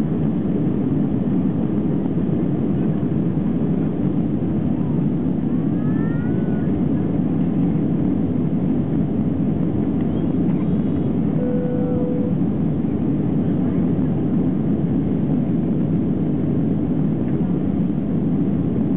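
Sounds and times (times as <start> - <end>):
jet engines rumbling at takeoff: 0.0 - 18.9
faint steady tone: 11.3 - 12.5.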